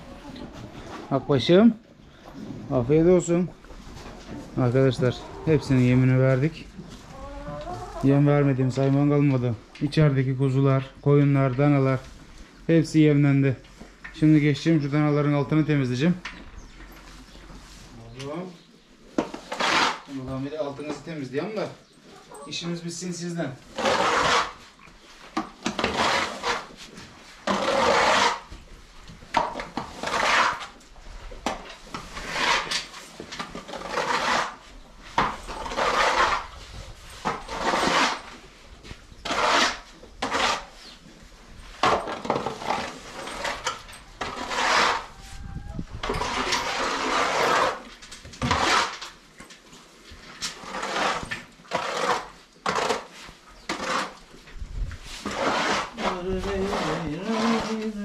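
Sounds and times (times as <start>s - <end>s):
hand tool scraping floor: 19.2s - 20.4s, 23.7s - 28.5s, 29.3s - 30.8s, 31.4s - 41.0s, 41.7s - 45.4s, 46.0s - 49.6s, 50.3s - 54.2s, 55.0s - 58.0s.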